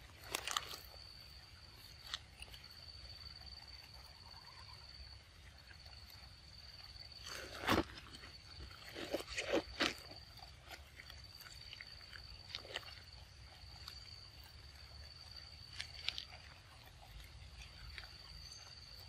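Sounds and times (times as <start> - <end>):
high insect drone: 0.0 - 19.0
monkey biting and chewing fruit: 0.1 - 3.1, 7.0 - 19.0.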